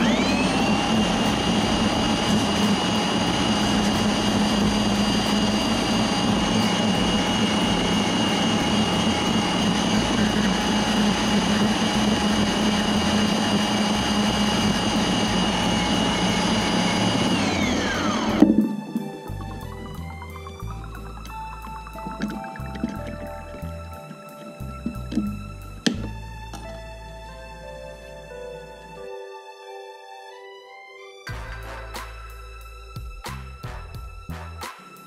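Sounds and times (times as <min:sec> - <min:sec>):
saw spinning down: 0:00.0 - 0:26.2
bandsaw whining: 0:00.0 - 0:27.2.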